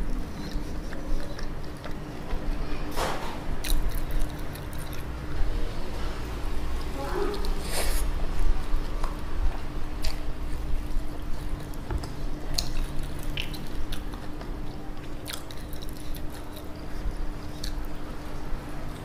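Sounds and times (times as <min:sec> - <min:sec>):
wet chewing: 0:00.0 - 0:02.8, 0:03.6 - 0:05.5, 0:08.7 - 0:19.0.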